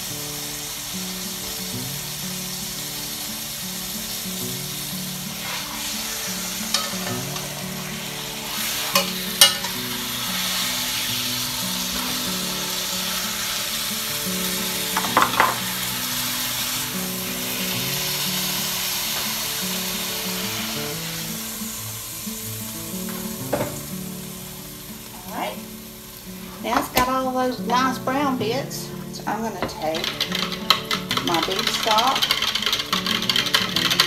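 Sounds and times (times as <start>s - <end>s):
meat sizzling in oil: 0.0s - 34.0s
soft background music: 0.0s - 34.0s
metal tongs clinking on pot: 6.7s - 10.6s, 14.9s - 15.7s, 29.6s - 34.0s.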